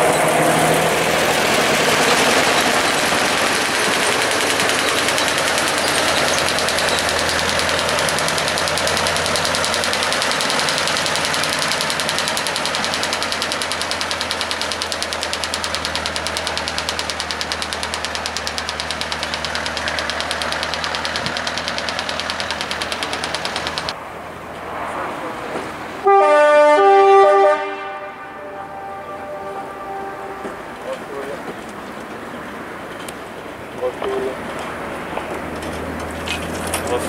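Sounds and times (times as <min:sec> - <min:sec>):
diesel locomotive engine knocking: 0:00.0 - 0:24.0.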